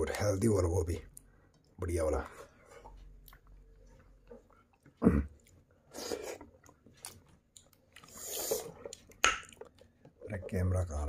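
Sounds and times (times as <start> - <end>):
person chewing and eating: 1.1 - 10.6.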